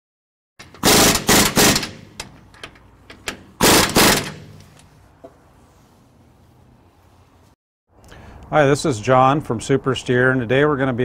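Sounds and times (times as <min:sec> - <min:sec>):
rapid mechanical rattling: 0:03.2 - 0:04.6.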